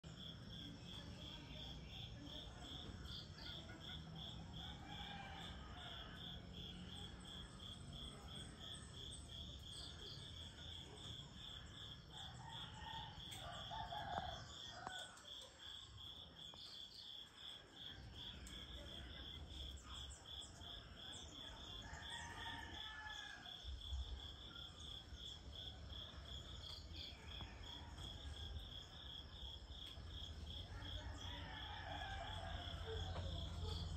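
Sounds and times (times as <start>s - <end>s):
distant roosters crowing: 4.2s - 6.7s, 21.8s - 23.8s, 30.9s - 33.9s.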